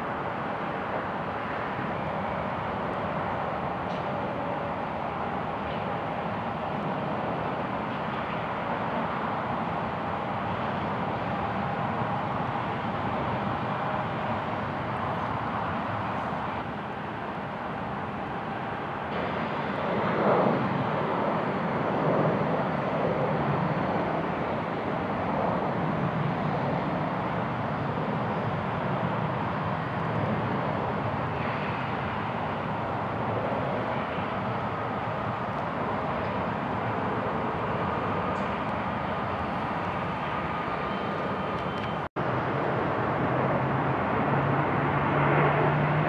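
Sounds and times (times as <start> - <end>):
jet airliner rumble: 0.0 - 46.0.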